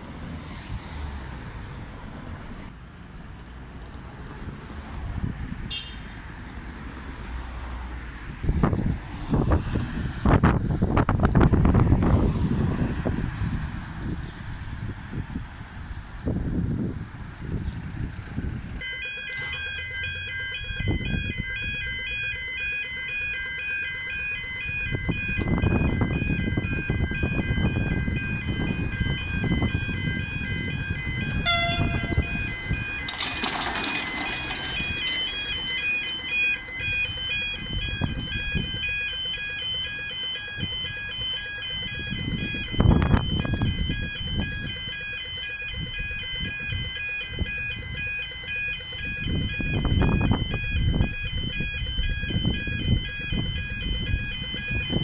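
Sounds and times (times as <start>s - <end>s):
level crossing warning bells: 18.8s - 55.0s.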